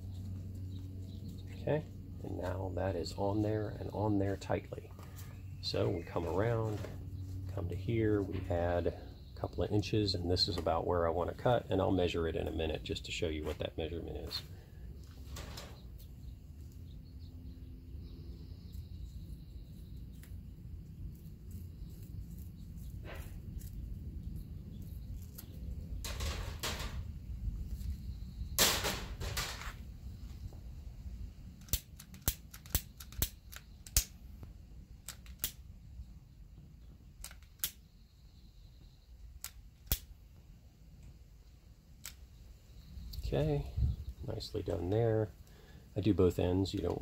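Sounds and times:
wind rumbling on microphone: 21.9s - 31.6s, 42.9s - 44.6s.

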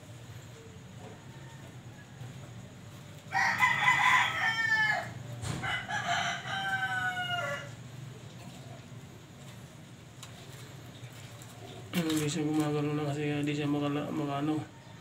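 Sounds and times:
rooster crowing: 1.0s - 7.9s.

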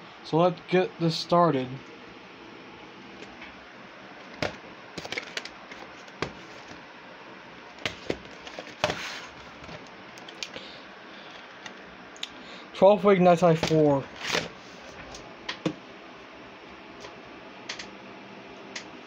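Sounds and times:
tape cases clicking and clacking: 4.4s - 6.8s.

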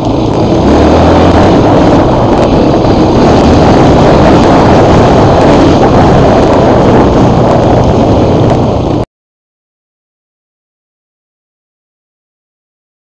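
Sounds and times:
motorcycle engine running: 0.0s - 9.0s
wind buffeting microphone: 0.0s - 9.0s.

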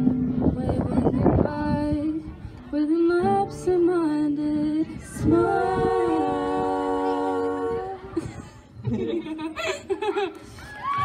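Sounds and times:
women singing in close harmony: 2.8s - 8.3s.

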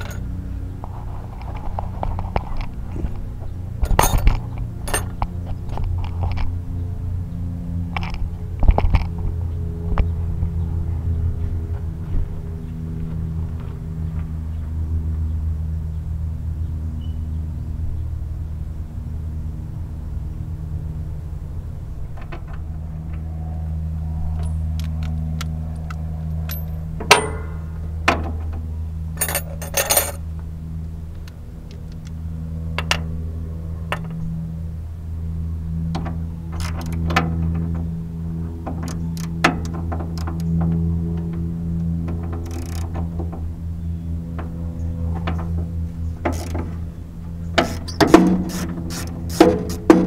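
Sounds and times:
jangling clatter: 0.0s - 0.3s, 3.8s - 5.2s, 26.4s - 27.6s, 29.2s - 30.2s
engine running hum: 0.0s - 50.0s
sharp metallic knocks: 26.5s - 28.3s.

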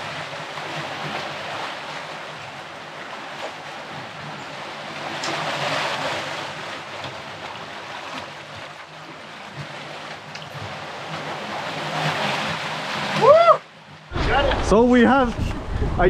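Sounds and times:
water rushing and splashing: 0.0s - 16.0s.

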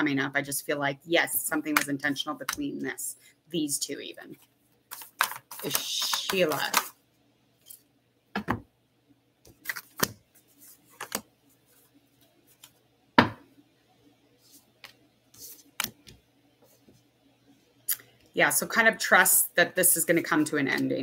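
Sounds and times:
faint steady hum: 0.0s - 21.0s
cards shuffling and tapping: 4.9s - 6.9s, 9.5s - 11.3s.

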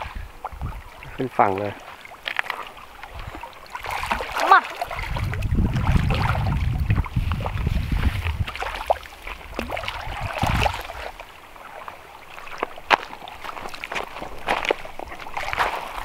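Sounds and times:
wind rumble on microphone: 0.0s - 1.4s, 4.9s - 11.2s
water sloshing and splashing: 0.0s - 16.0s.

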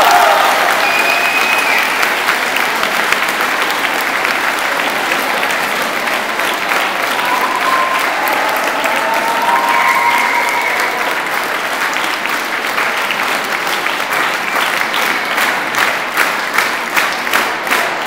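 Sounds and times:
voices cheering: 0.0s - 2.4s, 6.6s - 11.7s
audience applauding: 0.0s - 18.0s
rhythmic clapping in unison: 0.0s - 18.0s.

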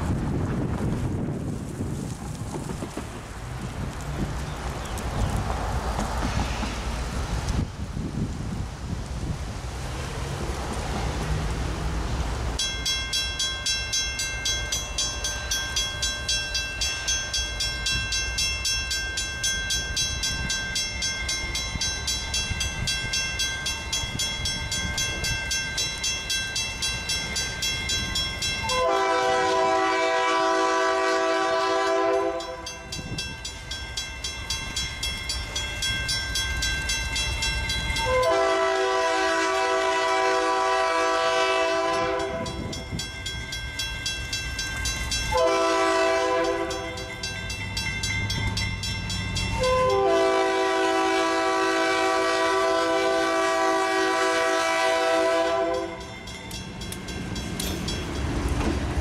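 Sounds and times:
locomotive rumble: 0.0s - 59.0s
crossing signal bell dinging: 12.6s - 38.7s, 41.8s - 50.6s, 55.5s - 58.6s
train horn: 28.6s - 32.8s, 38.0s - 42.6s, 45.3s - 47.1s, 49.6s - 56.1s.

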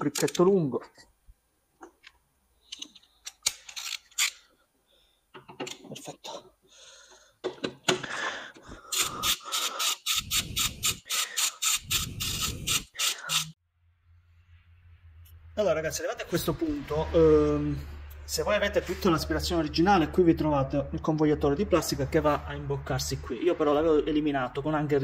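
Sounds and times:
ratchet clicking: 8.9s - 13.6s.

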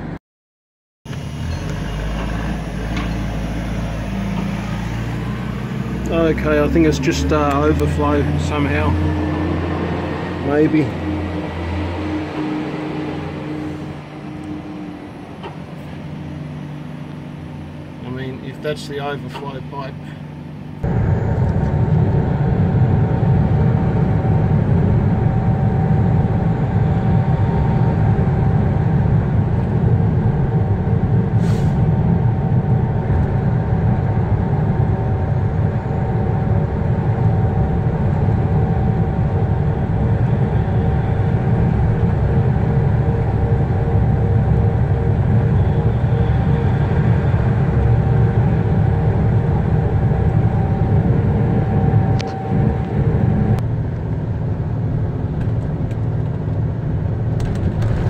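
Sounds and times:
road noise: 1.1s - 58.0s
truck diesel engine rumble: 1.1s - 58.0s
faint steady whine: 10.3s - 31.3s, 32.1s - 56.1s
short hiss: 31.4s - 31.8s.

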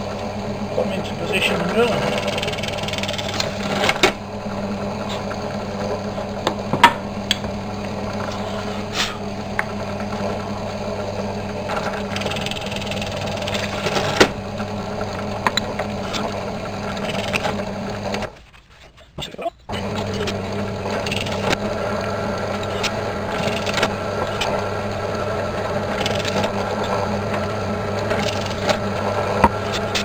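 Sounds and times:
drill press humming: 0.0s - 18.4s, 19.7s - 30.0s.

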